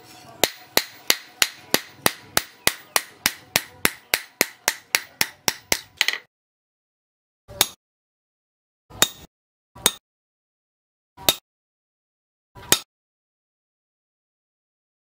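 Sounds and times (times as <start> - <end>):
hammer striking steel chisel: 0.4 - 6.3, 7.5 - 7.8, 8.9 - 10.0, 11.2 - 11.4, 12.6 - 12.9.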